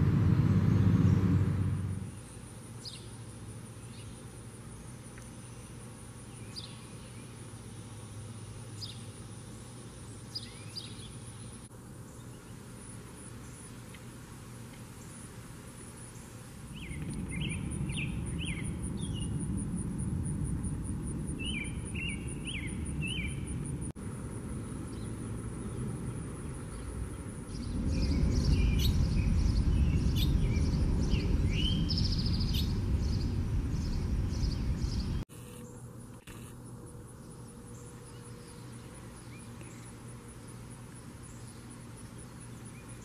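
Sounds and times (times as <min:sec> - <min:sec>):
low wind rumble: 0:00.0 - 0:02.2, 0:16.6 - 0:35.3
songbirds singing: 0:00.0 - 0:14.1, 0:15.9 - 0:24.0, 0:24.6 - 0:35.9, 0:36.8 - 0:43.0.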